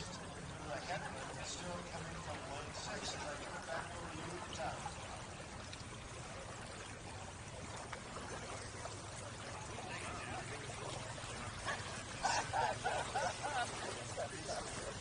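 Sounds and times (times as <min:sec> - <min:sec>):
people's voices: 0:09.4 - 0:15.0.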